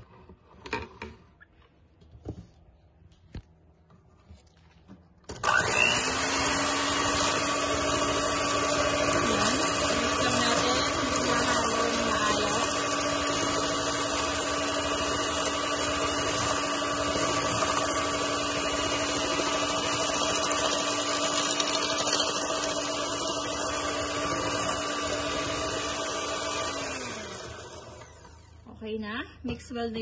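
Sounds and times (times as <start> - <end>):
electric hand mixer whirring: 5.3 - 28.7
mixer motor winding down: 5.3 - 28.7.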